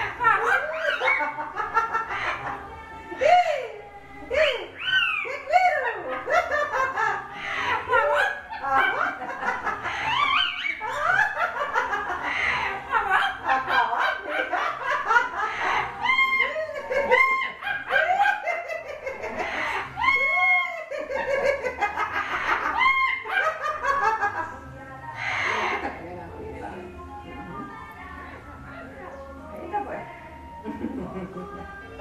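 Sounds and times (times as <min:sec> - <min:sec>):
parrot squawking chatter: 0:00.0 - 0:02.7, 0:04.5 - 0:24.3, 0:25.0 - 0:26.0.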